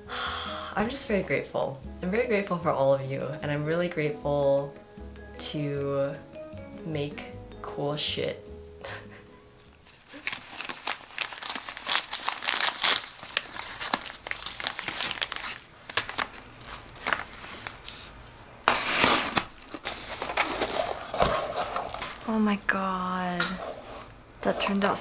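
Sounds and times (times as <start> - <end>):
paper packaging crinkling: 9.8 - 22.6
utility knife slicing packing tape: 18.7 - 20.4.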